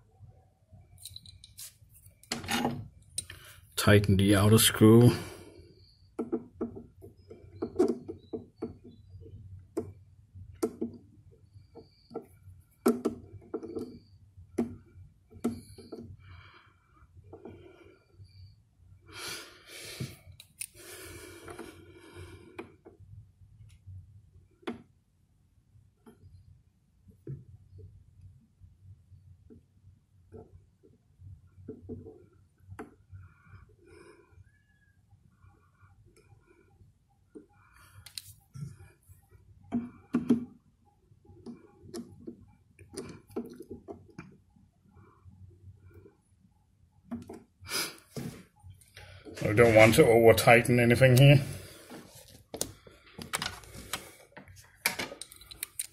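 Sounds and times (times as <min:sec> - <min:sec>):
metal tool clicks: 0:55.2 - 0:55.9.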